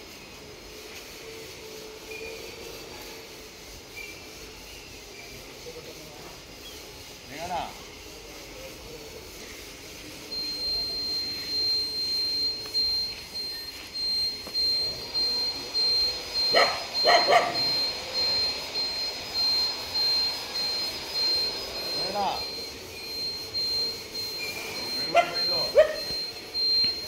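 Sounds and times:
high electronic beep pulsing: 0:10.2 - 0:27.0
dog barking: 0:16.5 - 0:17.8, 0:25.1 - 0:26.1.

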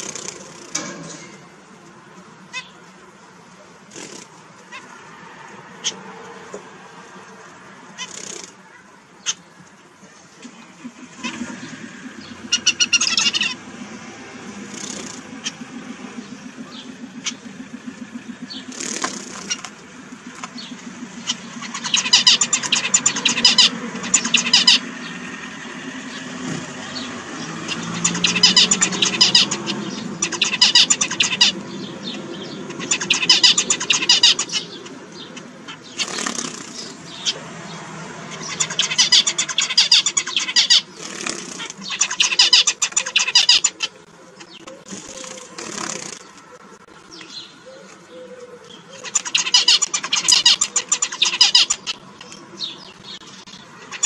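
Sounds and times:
zebra finch buzzy song: 0:01.7 - 0:05.0, 0:07.8 - 0:54.0
low steady hum: 0:09.6 - 0:35.8.

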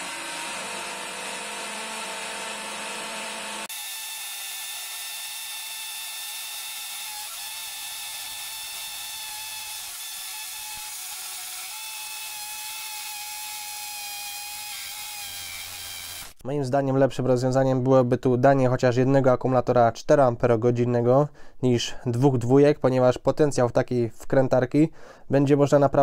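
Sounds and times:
hammer drill boring into brick: 0:00.0 - 0:16.4.

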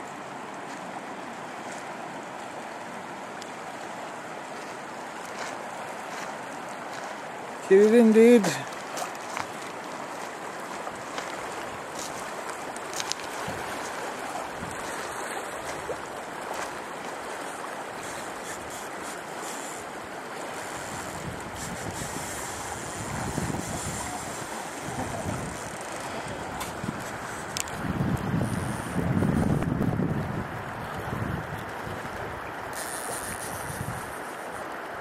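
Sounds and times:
river current rushing: 0:00.0 - 0:35.0
wind buffeting microphone: 0:13.0 - 0:15.0, 0:20.5 - 0:34.2.

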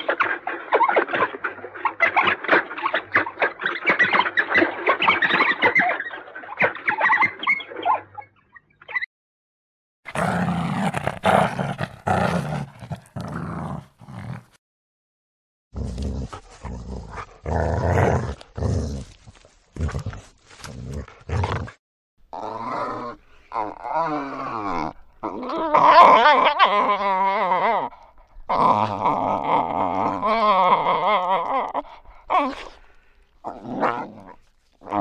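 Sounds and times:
wild dog whining: 0:15.9 - 0:35.0.

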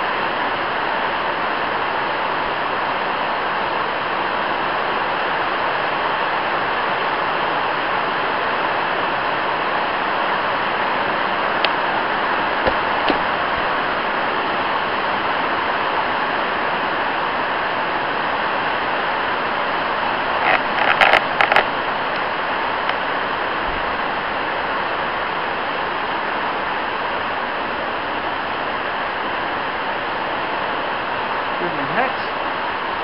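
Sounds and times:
heavy rain on shed roof: 0:00.0 - 0:33.0
knocks: 0:12.6 - 0:13.3.

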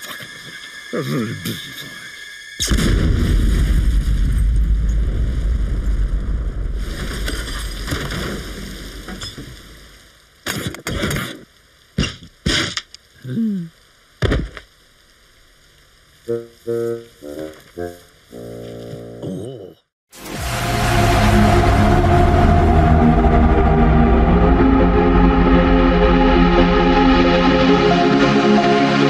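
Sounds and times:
cartoon explosion blast: 0:02.6 - 0:06.7.

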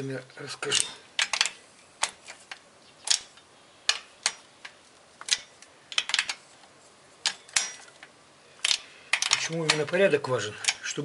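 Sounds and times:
hand tools clicking against metal: 0:00.6 - 0:06.4, 0:07.2 - 0:11.0.

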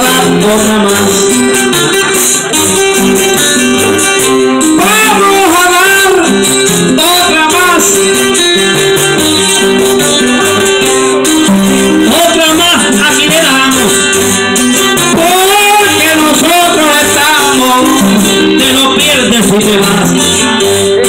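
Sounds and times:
person singing: 0:00.0 - 0:02.4, 0:04.4 - 0:08.3, 0:15.0 - 0:21.0
cuatro and acoustic guitar: 0:00.0 - 0:21.0.

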